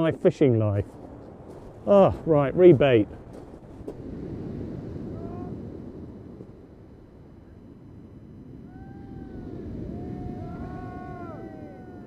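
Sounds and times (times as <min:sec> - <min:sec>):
wind on microphone: 0:03.0 - 0:12.0.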